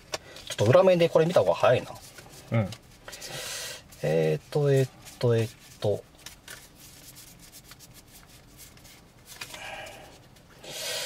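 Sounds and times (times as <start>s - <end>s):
cards rustling and clicking: 0.0s - 3.4s, 4.0s - 10.5s.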